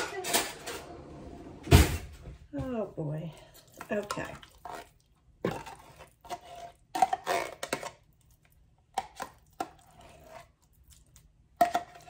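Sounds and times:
utensil scraping mixing bowl: 3.3s - 8.1s, 9.0s - 12.0s.

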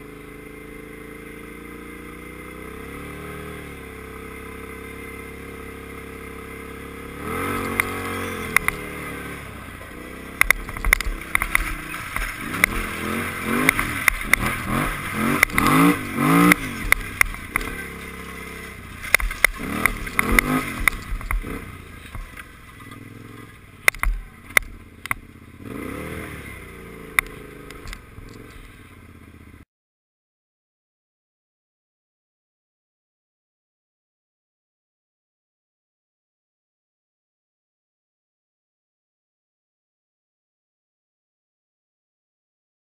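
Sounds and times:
quad engine revving: 0.0s - 29.6s.

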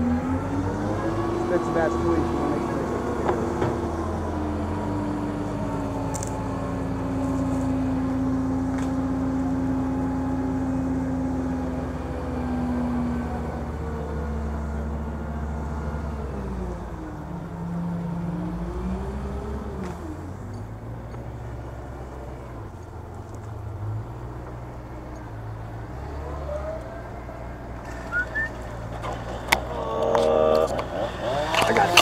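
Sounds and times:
crane engine revving: 0.0s - 32.0s.

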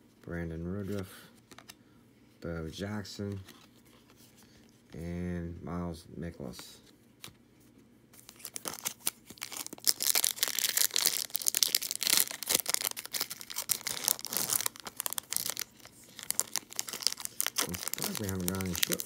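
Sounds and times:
foil wrapper tearing and crinkling: 8.2s - 19.0s.

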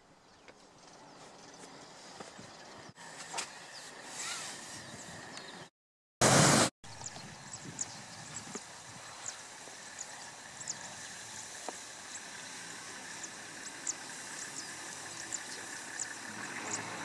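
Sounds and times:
vehicle engine driving through grass: 7.9s - 17.0s.

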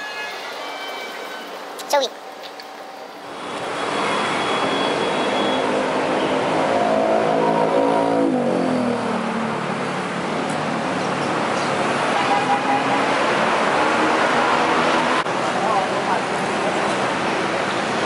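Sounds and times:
road traffic passing: 0.0s - 18.0s.

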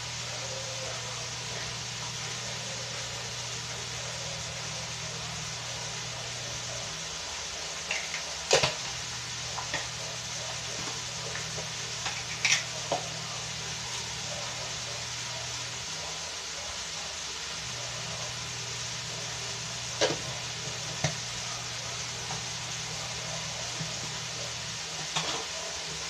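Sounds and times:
meat sizzling in a pan: 0.0s - 26.0s.

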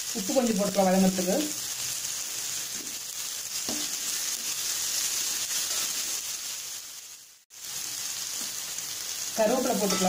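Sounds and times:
onions sizzling in hot oil: 0.0s - 10.0s.

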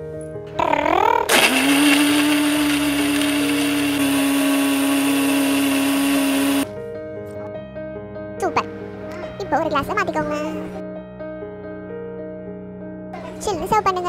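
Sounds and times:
mixer grinder blending: 1.3s - 6.7s.

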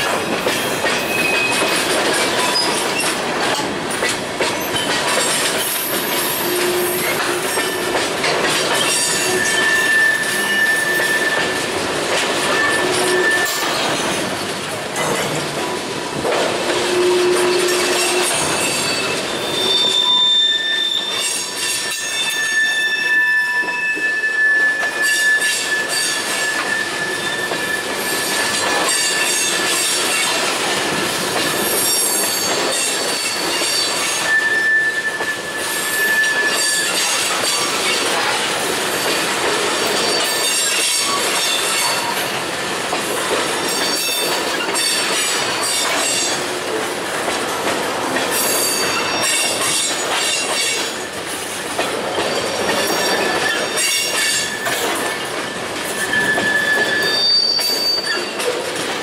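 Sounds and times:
train wheels clicking over rail joints: 0.0s - 20.3s, 24.8s - 59.0s
high-pitched wheel squeal: 6.2s - 7.8s, 8.8s - 11.6s, 12.5s - 13.8s, 16.9s - 29.5s, 33.2s - 37.2s, 56.0s - 58.4s.

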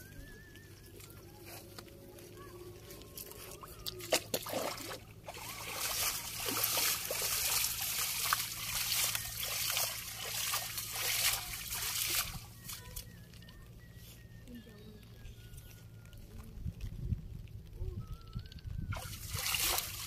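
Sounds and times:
water splashing and sloshing: 0.0s - 13.6s, 18.9s - 20.0s
fish thrashing in net: 3.8s - 12.8s, 18.9s - 20.0s.

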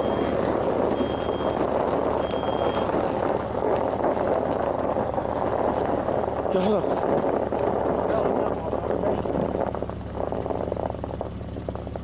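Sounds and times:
high electronic warning chime: 0.0s - 0.4s, 1.0s - 1.6s, 2.2s - 2.9s
car running inside cabin: 0.0s - 12.0s.

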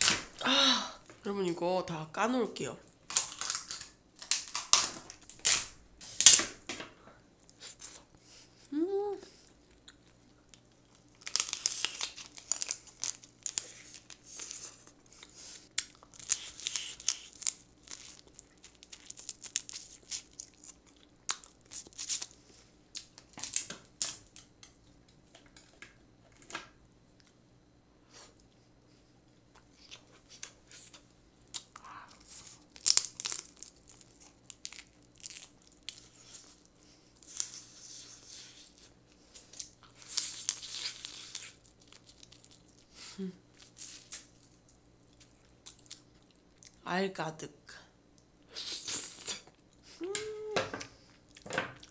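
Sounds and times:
crab shells cracking: 3.1s - 6.6s, 10.5s - 14.2s, 15.8s - 22.4s, 32.6s - 36.1s
crunchy chewing: 9.3s - 25.7s, 28.1s - 46.8s.

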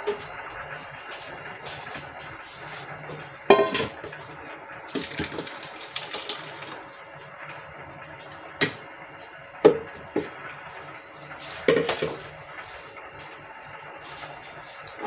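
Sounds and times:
thick puree pouring: 4.9s - 6.9s.

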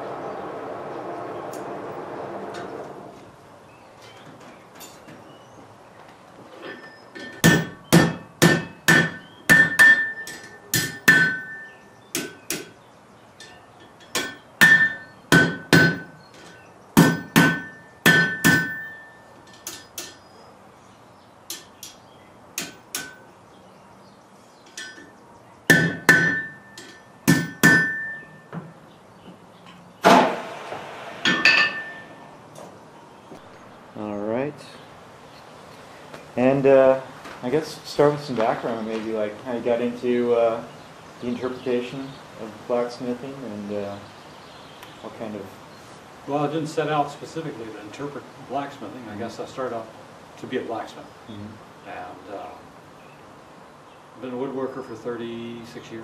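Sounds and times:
rough noisy sound: 0.0s - 3.6s, 30.0s - 34.5s
hammer striking metal on anvil: 7.2s - 12.8s, 13.4s - 16.2s, 17.0s - 20.2s, 21.5s - 22.0s, 22.6s - 23.3s, 25.7s - 28.4s, 31.2s - 32.2s.

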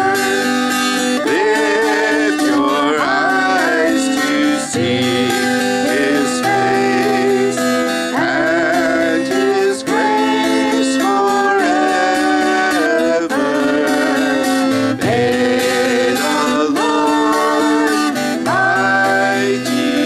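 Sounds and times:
acoustic guitar playing: 0.0s - 20.0s
sustained melody line: 0.0s - 20.0s.

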